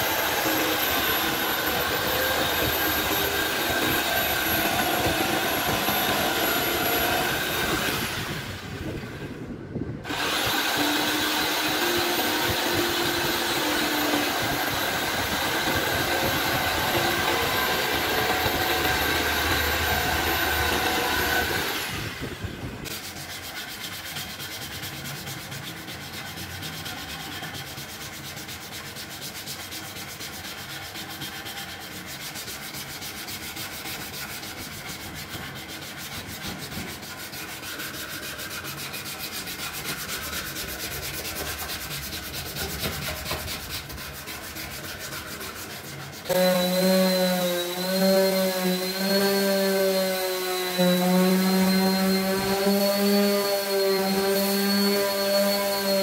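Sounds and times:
hand file rubbing wood: 0.0s - 8.5s, 10.1s - 56.0s
electric jigsaw cutting wood: 0.0s - 8.7s, 10.0s - 22.5s, 46.3s - 56.0s.

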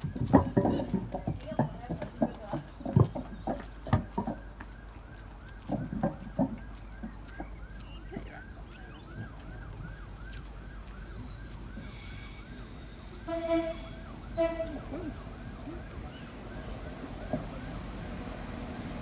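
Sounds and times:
siren yelping: 4.1s - 18.1s.

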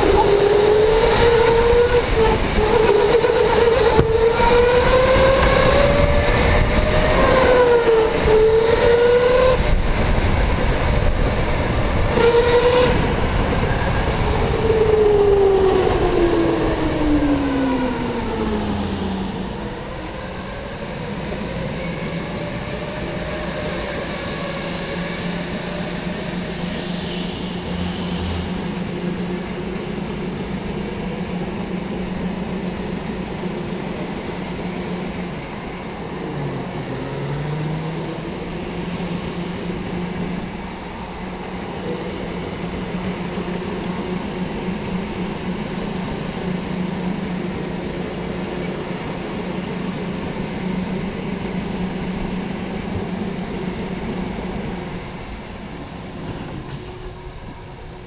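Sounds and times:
electric go-kart motor whining: 0.0s - 20.9s
low hum: 25.5s - 30.9s.

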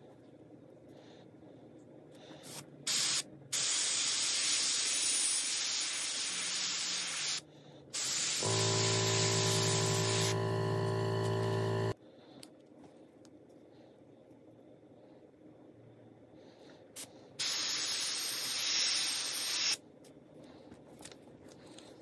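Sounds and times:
airbrush spraying paint: 2.4s - 7.4s, 8.0s - 12.0s, 17.0s - 19.8s
low hum: 8.4s - 12.0s.

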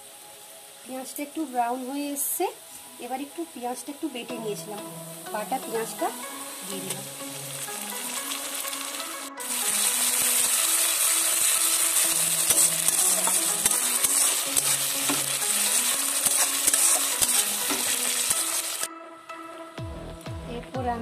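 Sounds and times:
onion frying in hot oil: 0.0s - 4.2s, 5.4s - 18.9s
metal spatula scraping pan: 12.4s - 18.0s.

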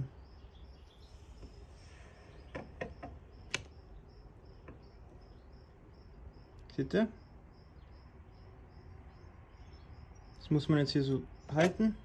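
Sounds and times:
faint high chirp: 0.0s - 12.0s.

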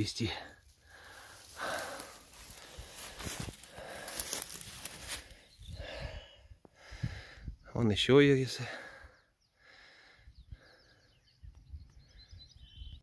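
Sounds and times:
footsteps through low plants: 0.0s - 6.0s
person breathing heavily: 0.4s - 7.6s, 8.6s - 11.2s.

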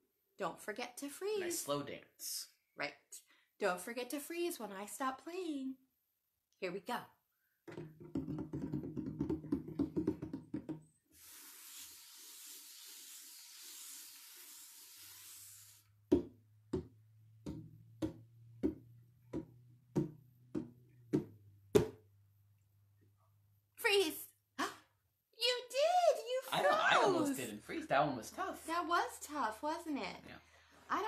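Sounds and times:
hand drum beats: 7.7s - 10.9s, 16.1s - 22.0s
steady hiss: 11.1s - 16.0s.

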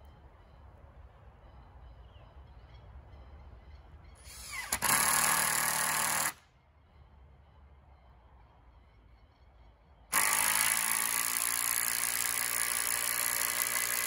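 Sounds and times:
cordless drill whining: 4.4s - 6.3s, 10.2s - 14.0s.

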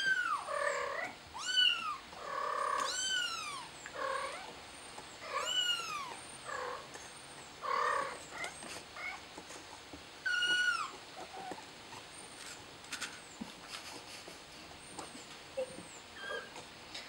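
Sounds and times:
kitten meowing: 0.0s - 2.0s, 2.6s - 4.5s, 5.3s - 6.2s, 10.3s - 11.0s.

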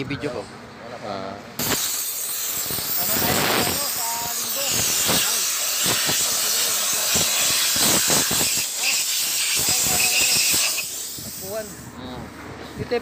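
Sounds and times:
compressed air hissing: 1.6s - 11.9s.

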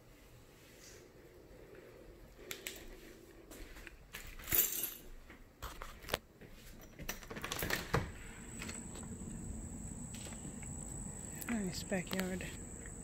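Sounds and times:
high-pitched insect drone: 8.4s - 13.0s.

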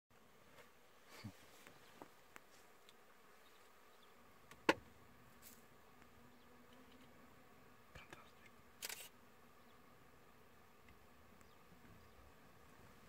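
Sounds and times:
faint insect buzzing: 0.2s - 13.0s
sharp click: 8.8s - 9.1s.

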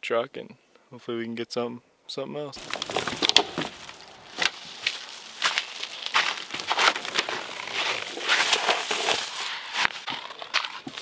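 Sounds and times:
footsteps: 2.6s - 11.0s
gear rustling and crunching: 2.6s - 11.0s.

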